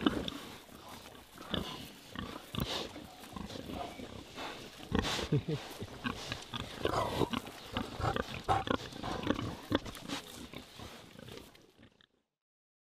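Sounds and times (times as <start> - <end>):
pigs grunting: 0.0 - 12.1.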